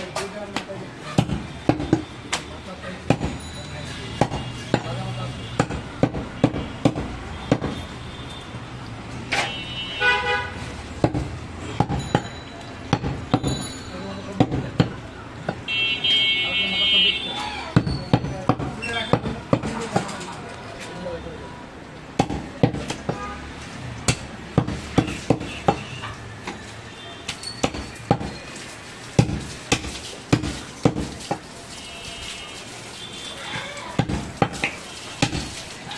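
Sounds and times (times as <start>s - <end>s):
cleaver chopping meat on wood: 0.6s - 3.4s, 4.2s - 7.8s, 11.0s - 13.5s, 14.3s - 15.7s, 17.6s - 20.1s, 22.1s - 23.2s, 24.0s - 25.9s, 27.3s - 28.4s, 29.2s - 31.5s, 34.0s - 35.6s
vehicle horn toot: 9.4s - 10.6s, 15.7s - 17.4s.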